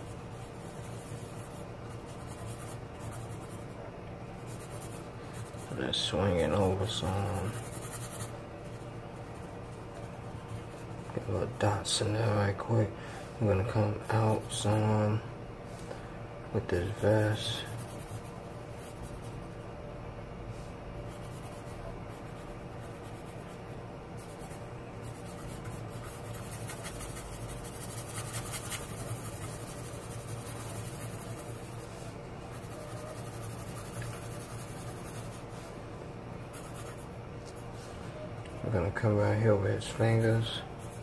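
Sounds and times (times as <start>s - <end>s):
pencil scratching on paper: 0.0s - 3.8s, 4.4s - 11.6s, 16.7s - 19.6s, 21.1s - 35.7s, 36.5s - 37.6s, 40.0s - 41.0s
low steady hum: 0.0s - 41.0s.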